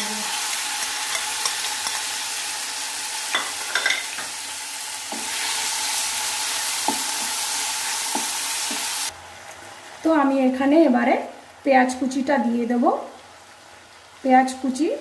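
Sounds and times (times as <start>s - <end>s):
chicken sizzling in hot oil: 0.0s - 15.0s
spatula stirring and tapping pan: 6.8s - 7.4s, 8.0s - 8.9s.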